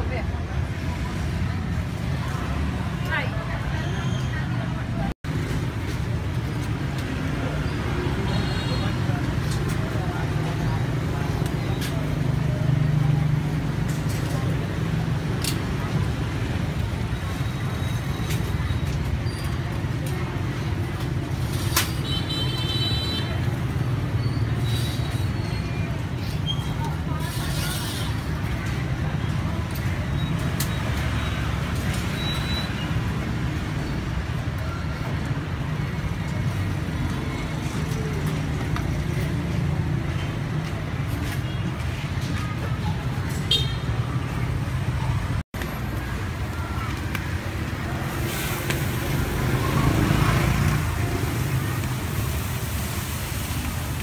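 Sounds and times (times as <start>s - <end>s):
street traffic rumble: 0.0s - 54.0s.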